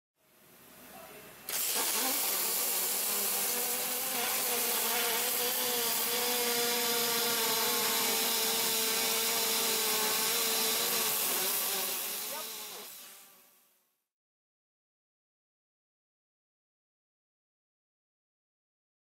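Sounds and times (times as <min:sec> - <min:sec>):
welding arc hissing buzz: 0:01.5 - 0:13.7.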